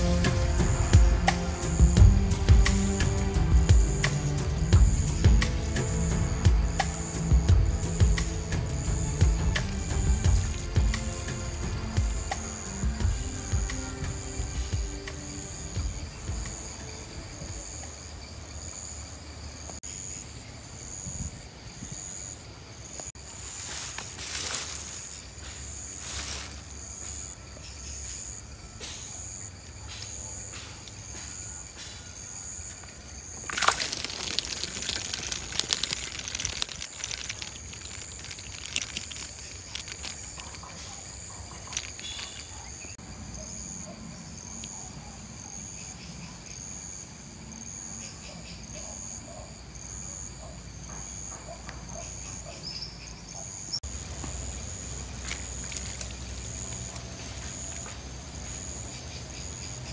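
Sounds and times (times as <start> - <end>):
insect chirping: 0.0 - 59.9
fish splashing and thrashing: 9.0 - 12.2, 33.2 - 43.0, 55.3 - 56.9.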